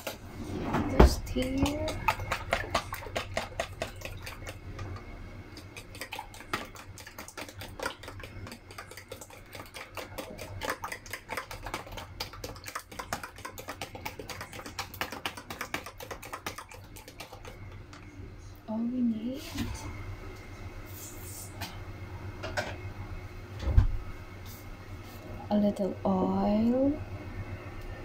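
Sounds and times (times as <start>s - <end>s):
metal spoon beating eggs in tub: 0.9s - 18.0s.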